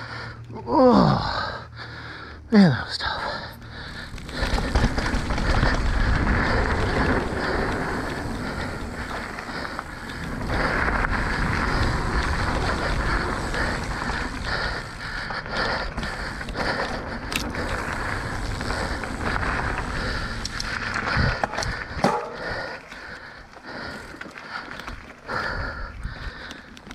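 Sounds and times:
bike rattling over bumps: 3.6 - 26.9
bike tyres rolling over dirt: 3.6 - 26.9
wind rush on microphone: 4.2 - 15.0, 17.1 - 22.2.

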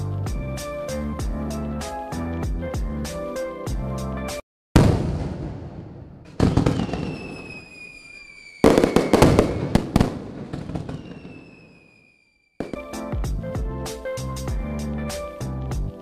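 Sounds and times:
crackling firework bangs: 4.8 - 13.2
falling firework whistle: 4.8 - 13.2
firework bangs: 4.8 - 13.2.

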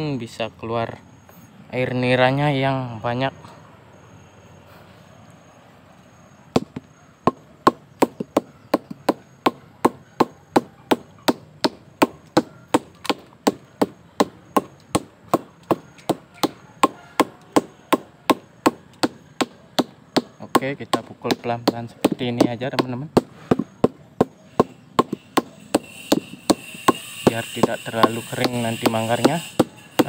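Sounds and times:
wooden stick knocking a stalk: 6.6 - 30.0.

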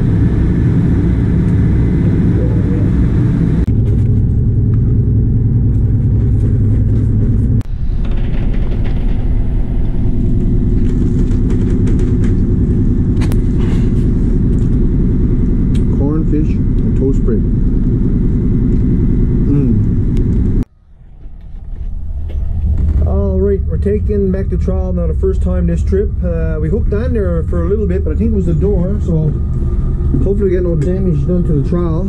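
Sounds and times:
boat engine humming: 0.0 - 32.0.

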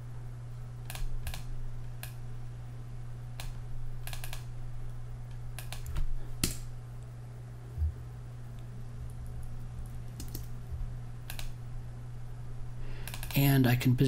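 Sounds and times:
steady low hum: 0.0 - 14.0
mouse clicks: 3.4 - 4.5, 5.6 - 6.6, 11.2 - 11.6, 13.0 - 13.4
keyboard keystrokes: 10.1 - 10.6, 13.0 - 13.4.

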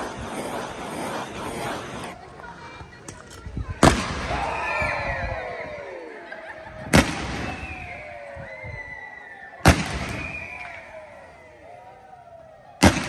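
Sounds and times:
fireworks banging: 0.0 - 2.2, 6.9 - 7.9, 9.6 - 11.0.

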